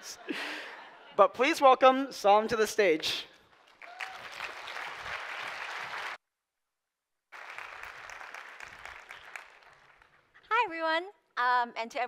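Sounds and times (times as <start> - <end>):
audience applauding: 3.5 - 6.2, 7.3 - 10.5.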